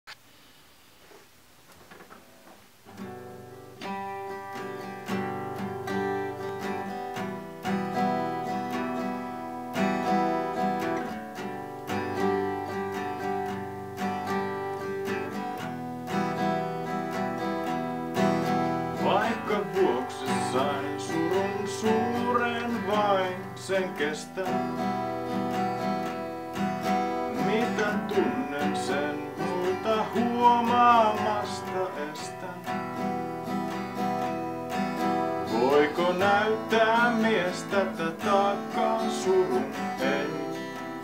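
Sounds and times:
acoustic guitar strummed chords: 1.9 - 41.0
man singing: 18.9 - 25.6, 27.0 - 33.2, 35.3 - 41.0.

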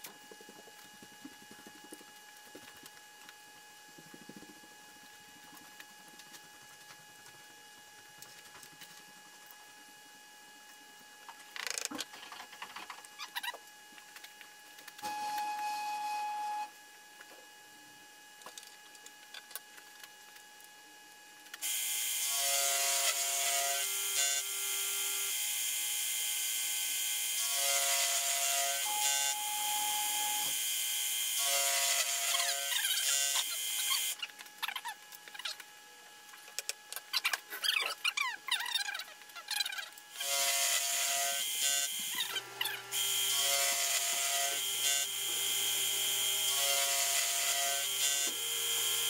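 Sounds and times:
milling machine cutting metal: 21.6 - 25.5, 26.3 - 34.2, 40.2 - 49.0.

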